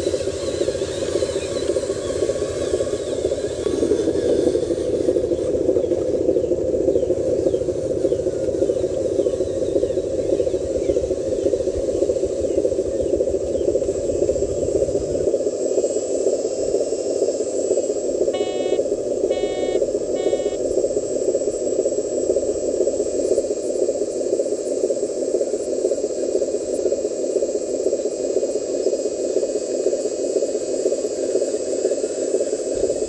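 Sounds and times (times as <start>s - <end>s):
toy truck motor and gearbox: 0.0s - 5.5s
deep rumble: 0.0s - 15.5s
short beeps: 18.3s - 20.6s.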